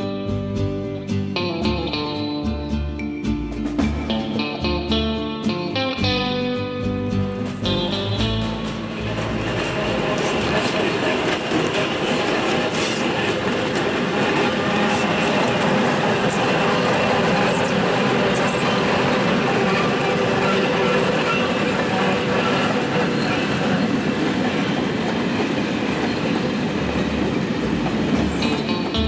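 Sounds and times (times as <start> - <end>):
diesel locomotive engine drone: 0.0 - 29.0
train wheels clattering on rails: 7.4 - 29.0.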